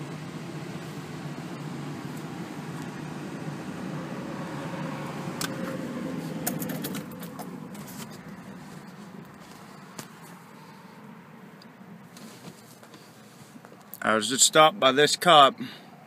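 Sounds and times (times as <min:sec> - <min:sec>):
car engine idling: 0:00.0 - 0:14.2
sharp clicks and knocks: 0:06.4 - 0:08.2.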